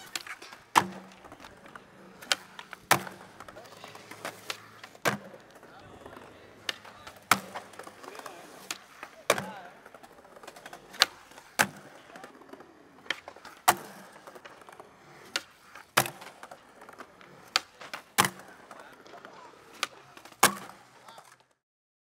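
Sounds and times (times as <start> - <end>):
skateboard landing slap: 0.0 - 21.4
skateboard tail popping: 0.0 - 21.5
skateboard wheels rolling: 0.0 - 21.6.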